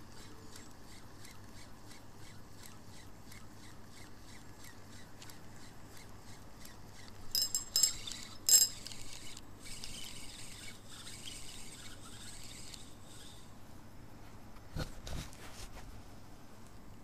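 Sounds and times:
small metal objects clinking: 7.3s - 9.2s.

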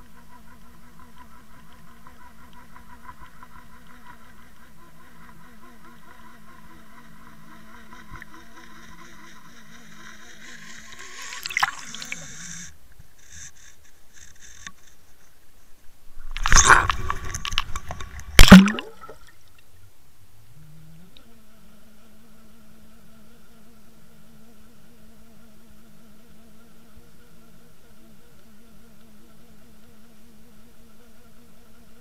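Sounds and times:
steady hum: 9.1s - 20.8s
churning water: 10.9s - 12.4s, 16.2s - 19.4s.

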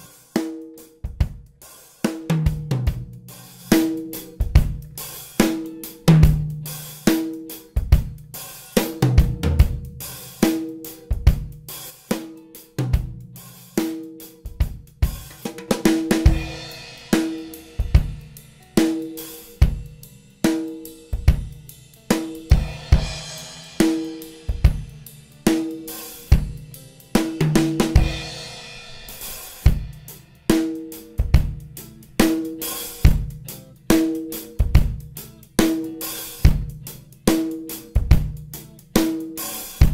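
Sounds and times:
drum kit groove: 0.0s - 39.9s
cymbal wash: 16.2s - 33.1s.

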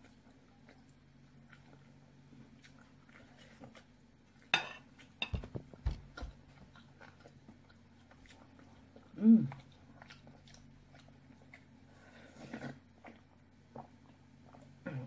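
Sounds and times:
cutlery clinking on a plate: 4.6s - 5.5s.

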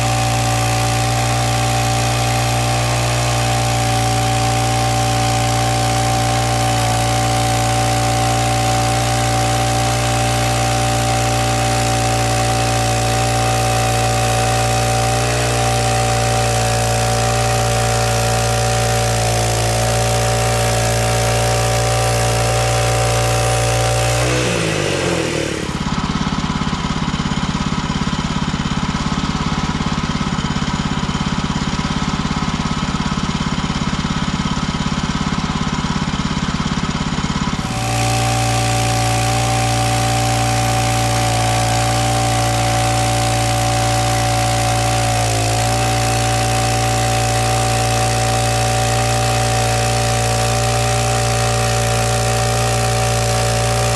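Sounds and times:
sawmill engine running: 0.0s - 53.9s.

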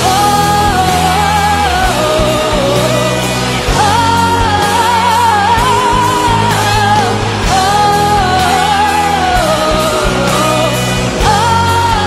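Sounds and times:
band playing: 0.0s - 12.0s
woman singing: 0.0s - 12.0s.

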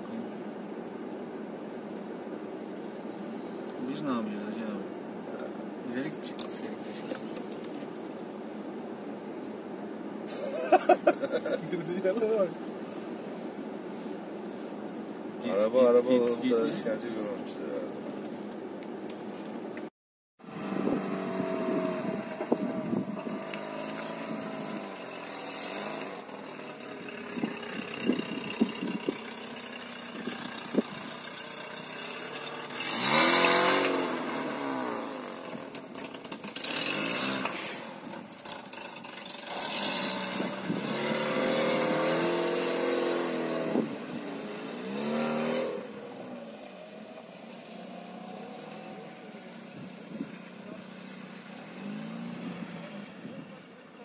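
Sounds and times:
engine revving: 20.4s - 53.7s.

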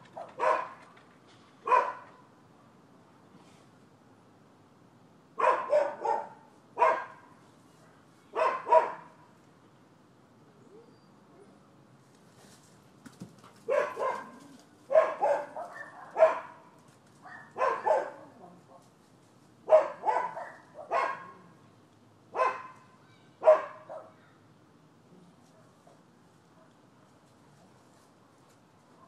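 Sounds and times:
dogs barking: 0.0s - 0.9s, 1.6s - 2.2s, 5.4s - 7.3s, 8.4s - 9.2s, 13.6s - 18.4s, 19.6s - 21.5s, 22.3s - 22.8s, 23.4s - 24.2s.

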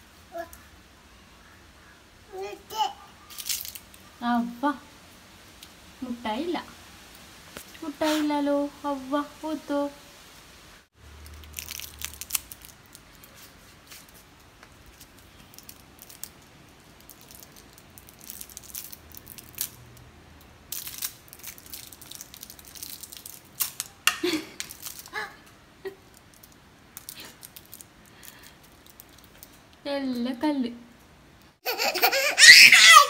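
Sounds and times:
plastic wrapper crinkling and tearing: 3.3s - 4.1s, 11.2s - 20.0s, 20.7s - 25.4s, 26.0s - 29.6s.

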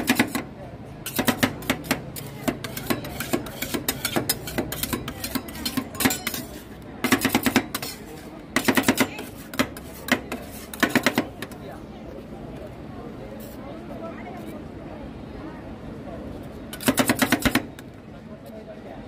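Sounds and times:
metal spatulas clacking on steel: 1.0s - 8.0s, 8.6s - 11.2s.

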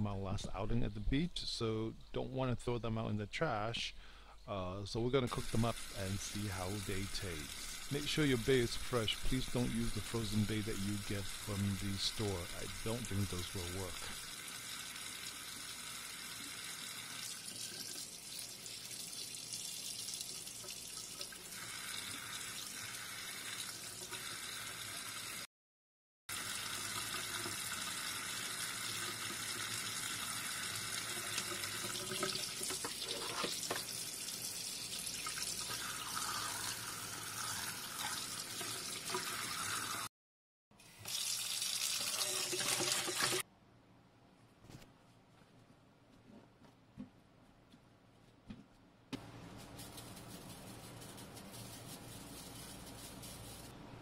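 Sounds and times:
tap water running into sink: 12.5s - 25.4s, 26.3s - 40.0s, 40.8s - 43.4s.

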